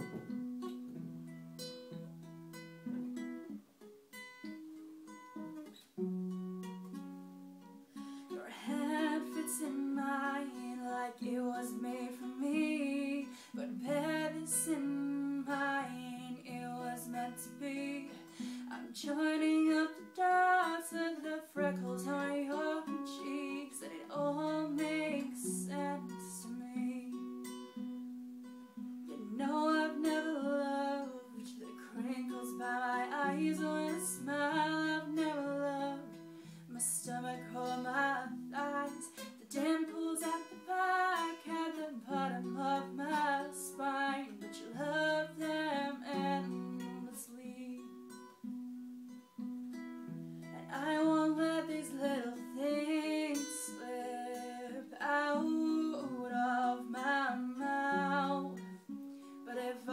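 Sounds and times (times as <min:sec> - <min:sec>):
acoustic guitar: 0:00.0 - 0:59.9
woman singing: 0:08.3 - 0:27.5, 0:29.1 - 0:48.2, 0:50.5 - 0:59.9.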